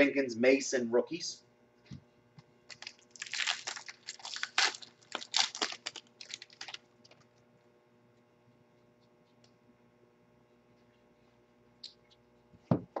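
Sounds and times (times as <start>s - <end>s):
foil wrapper tearing and crinkling: 2.7s - 7.2s.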